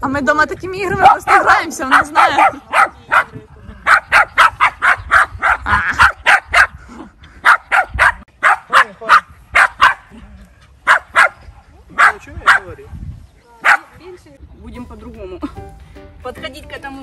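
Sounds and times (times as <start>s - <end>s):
small dog barking yappy barks: 1.0s - 6.7s, 7.4s - 10.1s, 10.8s - 11.4s, 12.0s - 12.7s, 13.6s - 13.9s.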